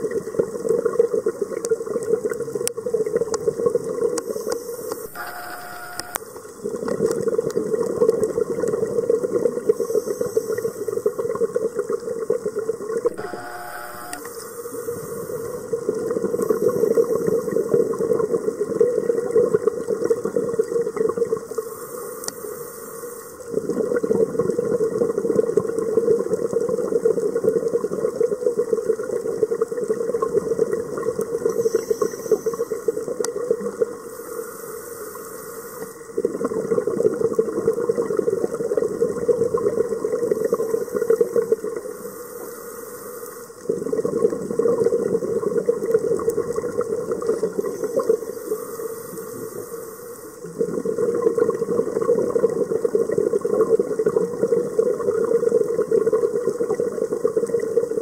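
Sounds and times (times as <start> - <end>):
regulator inhalation hiss: 9.7 - 11.2, 13.8 - 15.7, 21.6 - 23.4, 34.0 - 36.1, 40.4 - 43.6, 47.6 - 50.4
exhaled bubbles rushing: 36.0 - 41.9, 43.6 - 48.3, 50.4 - 58.0.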